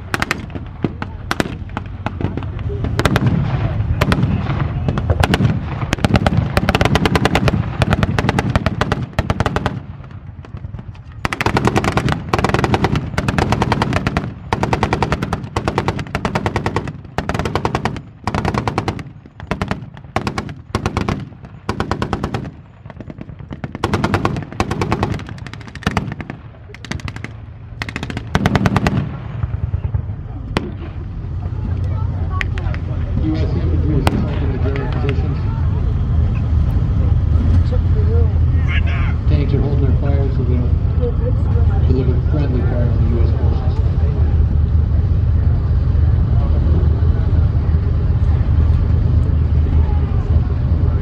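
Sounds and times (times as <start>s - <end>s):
tank engines rumbling: 0.0s - 51.0s
single rifle shots: 11.2s - 29.4s.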